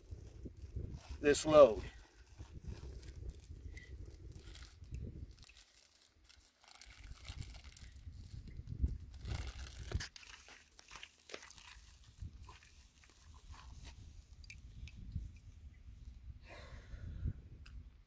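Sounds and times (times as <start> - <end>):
wind rumble on microphone: 0.0 - 5.5, 6.8 - 10.1, 12.0 - 12.6, 13.2 - 18.0.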